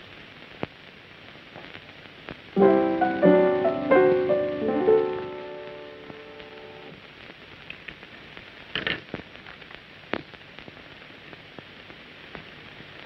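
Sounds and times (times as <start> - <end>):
film soundtrack hiss and crackle: 0.0 - 13.0.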